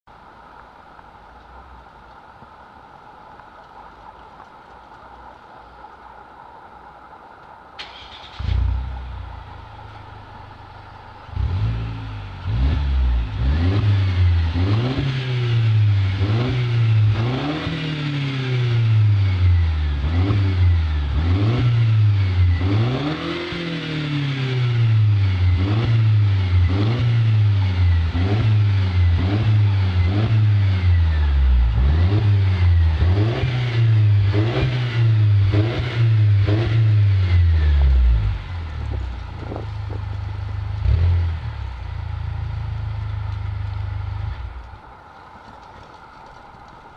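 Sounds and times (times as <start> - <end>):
car engine revving: 7.8 - 44.7.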